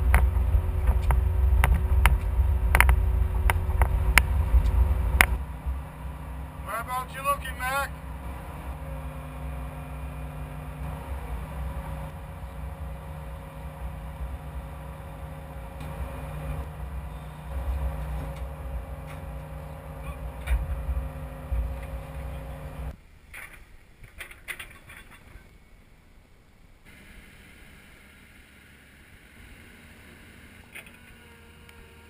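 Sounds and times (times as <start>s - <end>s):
excavator diesel engine running: 0.0s - 23.0s.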